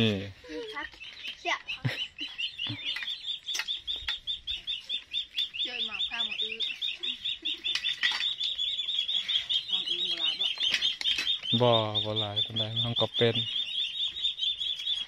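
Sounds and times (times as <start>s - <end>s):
high-pitched animal chirping: 0.5s - 15.0s.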